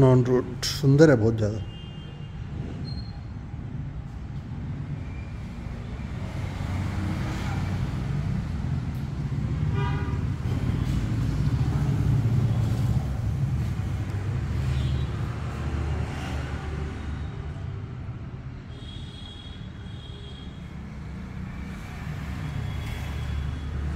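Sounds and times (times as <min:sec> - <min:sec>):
vehicle engine rumbling: 0:02.5 - 0:17.0.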